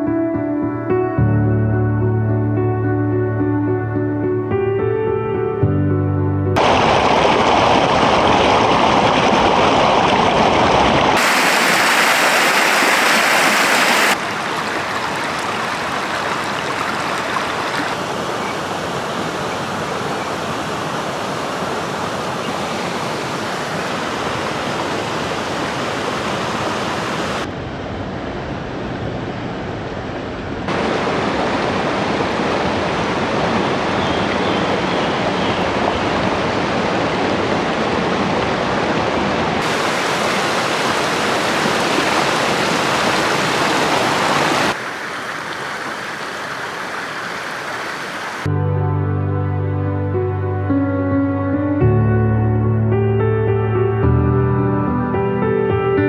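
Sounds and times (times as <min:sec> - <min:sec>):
river rushing over rocks: 0:06.6 - 0:27.5, 0:30.7 - 0:48.5.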